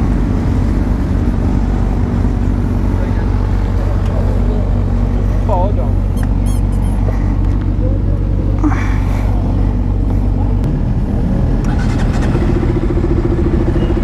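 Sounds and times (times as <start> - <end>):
short high chirps: 6.1 - 7.0.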